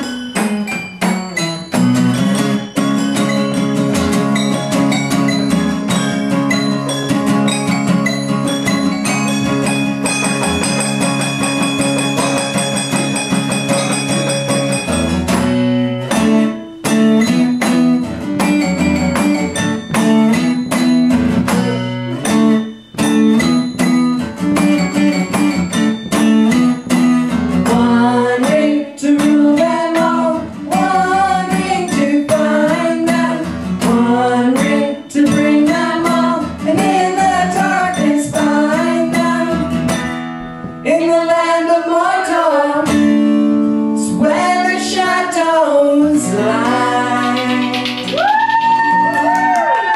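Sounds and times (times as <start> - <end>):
acoustic guitar strumming: 0.0 - 49.9
person singing: 27.7 - 39.7, 40.8 - 43.1, 44.0 - 49.8.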